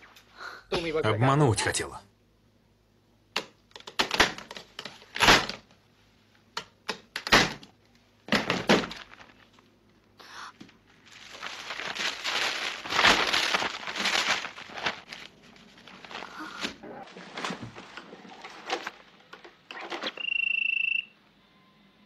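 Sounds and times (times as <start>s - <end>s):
rough rustling: 10.9s - 18.9s.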